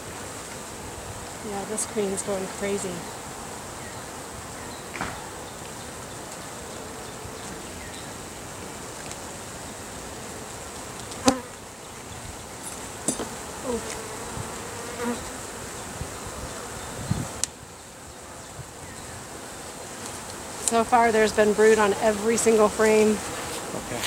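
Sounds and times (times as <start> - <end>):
bees buzzing: 0.0 - 24.0
wooden knocks of hive frames: 4.9 - 5.4, 12.7 - 14.0.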